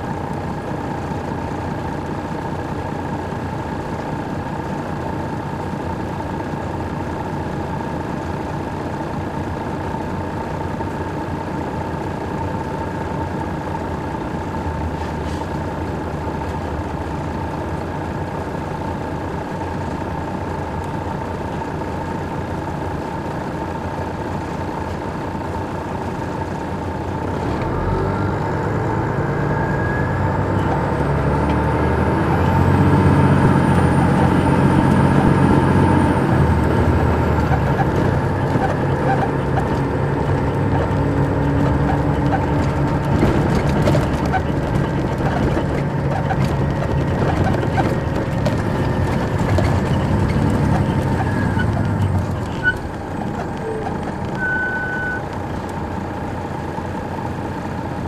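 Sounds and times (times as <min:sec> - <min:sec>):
coach engine running: 0:00.0 - 0:58.0
high engine whine: 0:00.0 - 0:58.0.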